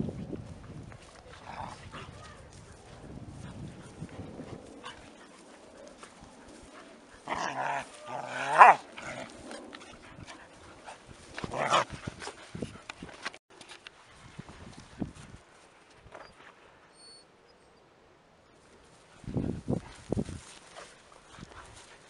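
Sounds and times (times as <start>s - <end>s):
puppies growling and barking: 7.2s - 12.3s.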